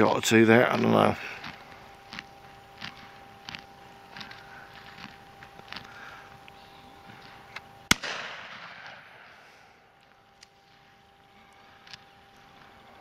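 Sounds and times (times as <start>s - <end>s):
faint scattered ticks: 0.0s - 7.9s, 10.0s - 13.0s
shotgun shot with echo: 7.9s - 9.3s.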